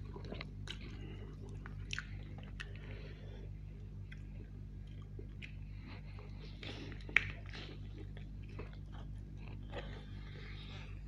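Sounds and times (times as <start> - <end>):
chewing with wet mouth sounds: 0.0 - 11.0.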